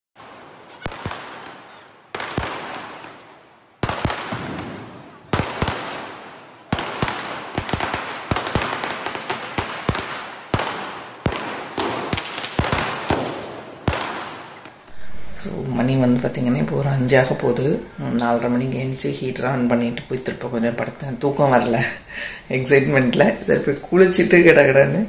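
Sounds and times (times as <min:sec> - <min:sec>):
firecrackers banging with echo: 0:00.2 - 0:18.9.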